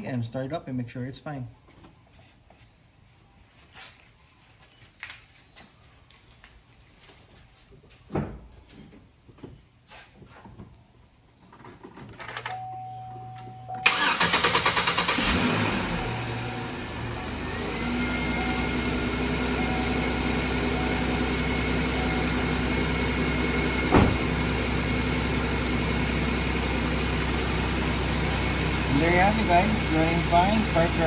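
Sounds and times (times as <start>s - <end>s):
brief tone: 12.5s - 13.8s
car engine cranking and idling: 13.7s - 31.0s.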